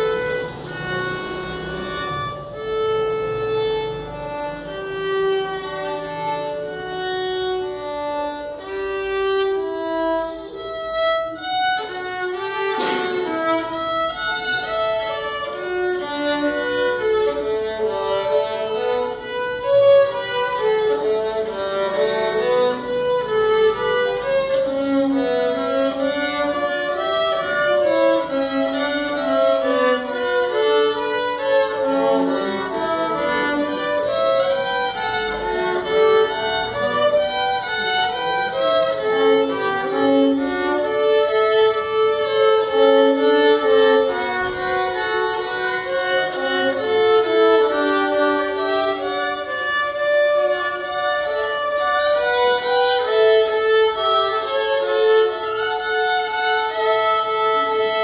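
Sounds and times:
two violins playing melody: 0.0s - 58.0s
sharp knock: 12.5s - 14.7s.

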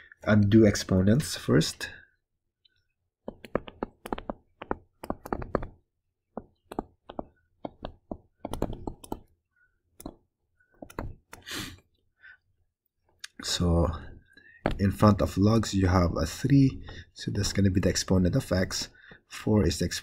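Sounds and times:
stylus tapping on tablet: 3.2s - 9.4s, 10.0s - 11.4s.

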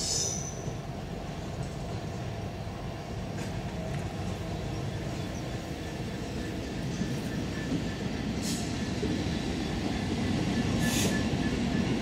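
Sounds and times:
train wheels rumbling on rail: 0.0s - 12.0s
high wheel squeal: 10.5s - 11.9s.

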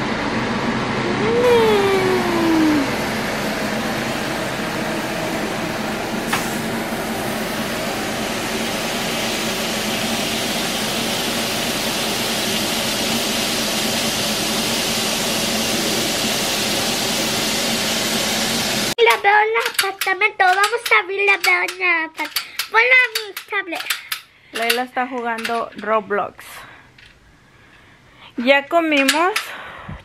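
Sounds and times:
burger patties sizzling on griddle: 6.1s - 18.9s.

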